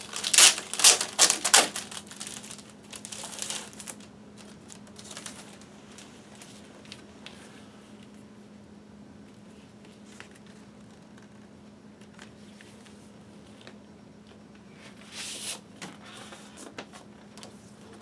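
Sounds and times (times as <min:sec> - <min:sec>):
paper sleeve rustling: 0:00.0 - 0:07.0
low steady hum: 0:00.0 - 0:18.0.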